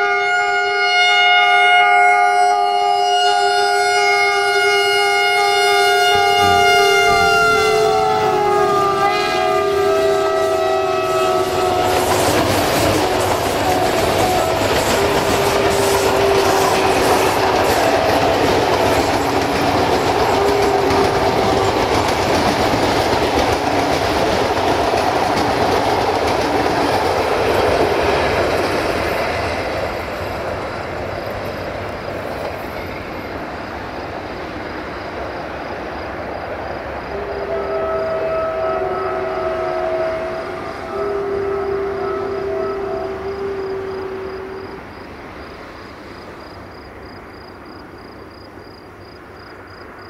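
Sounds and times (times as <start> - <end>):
locomotive air horn: 0.0 - 19.0, 19.8 - 22.3, 37.1 - 45.0
train wheels clattering: 6.0 - 34.0.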